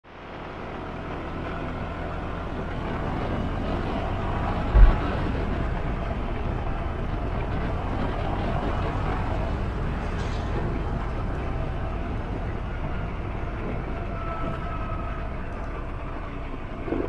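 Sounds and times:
scooter engine riding: 0.1 - 17.0
low thump: 4.7 - 5.3.

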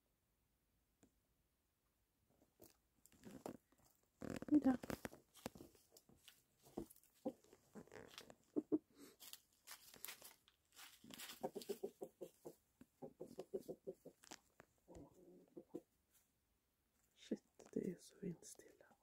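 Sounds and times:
chickens clucking: 8.4 - 9.0, 11.2 - 14.2, 14.9 - 16.0.

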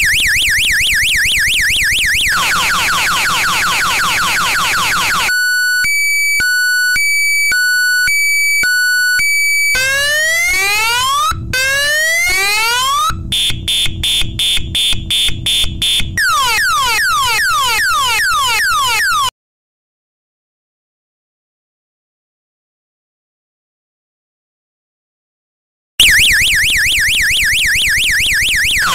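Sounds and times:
electronic siren cycling tones: 0.0 - 19.3, 26.0 - 28.9.

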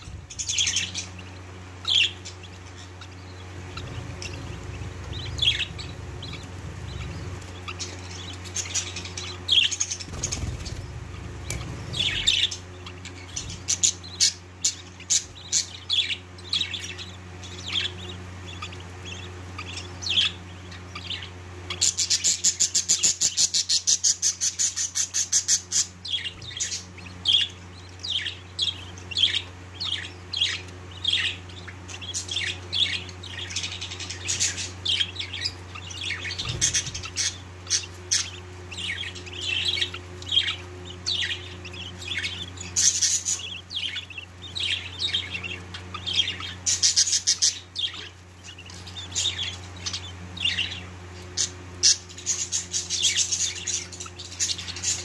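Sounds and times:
budgerigar chicks chirping: 0.0 - 55.0
low steady hum: 0.0 - 55.0.

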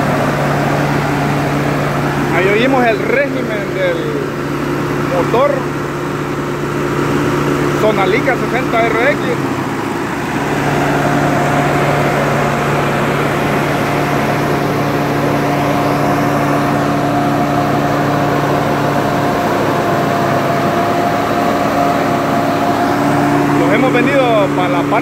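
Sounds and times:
tractor diesel engine running: 0.0 - 25.0.

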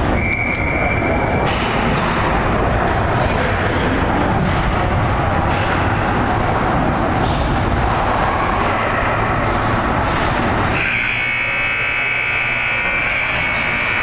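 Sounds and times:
ice hockey rink noise: 0.0 - 14.0
arena buzzer: 10.7 - 14.0.

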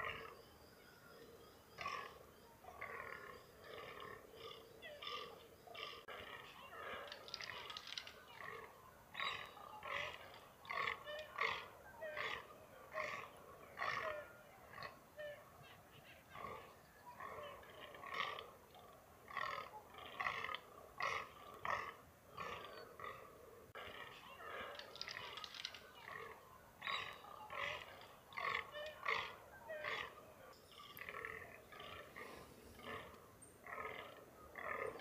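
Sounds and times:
deer mewing: 30.8 - 35.0.

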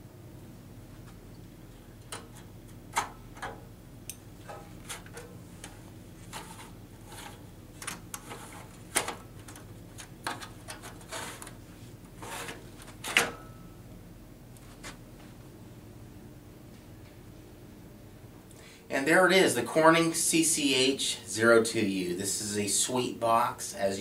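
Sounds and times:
tray sliding scrapes: 6.2 - 7.5, 8.1 - 9.2, 10.4 - 13.4.

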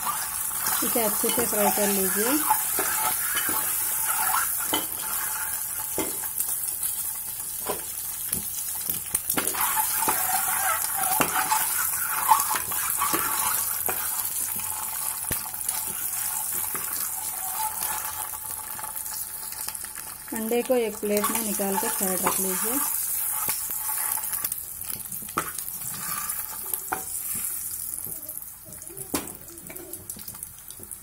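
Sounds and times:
eggs sizzling in hot oil: 0.0 - 31.0
metal spoon scraping a pot: 0.1 - 6.3, 9.5 - 14.2, 15.7 - 18.4, 21.2 - 24.4.

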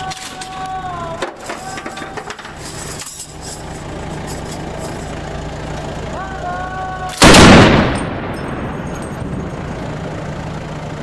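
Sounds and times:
engine humming: 0.0 - 11.0.

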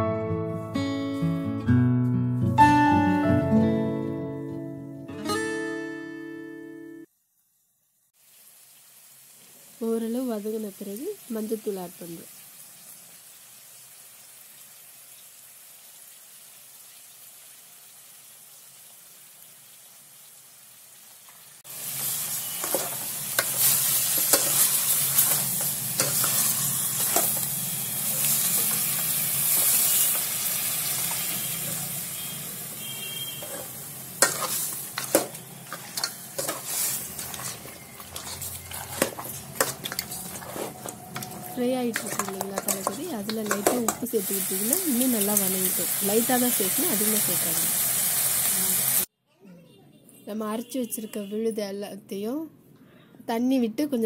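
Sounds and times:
meat sizzling in oil: 8.0 - 49.1
ladle scraping and knocking pot: 33.4 - 44.0.

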